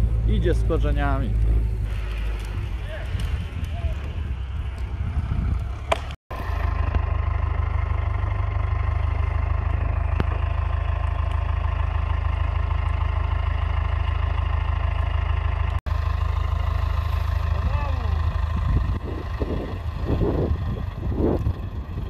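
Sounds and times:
tractor diesel engine idling: 0:05.9 - 0:22.0.

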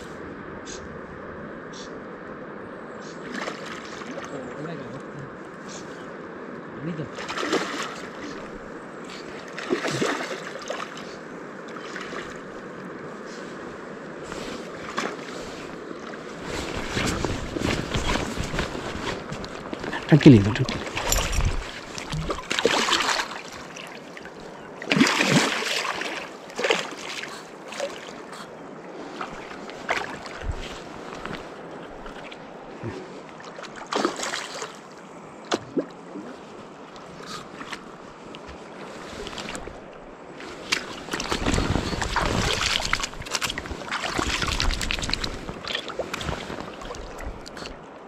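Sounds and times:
water splashing: 0:07.1 - 0:12.5, 0:14.7 - 0:28.4, 0:29.0 - 0:32.5, 0:33.4 - 0:34.9, 0:40.5 - 0:47.7
river water rushing: 0:07.1 - 0:35.1, 0:39.2 - 0:48.0.

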